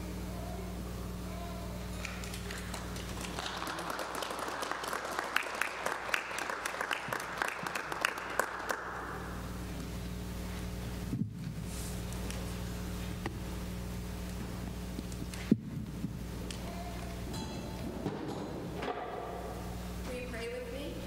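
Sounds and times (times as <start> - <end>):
low steady hum: 0.0 - 21.0
congregation applauding: 2.0 - 9.4.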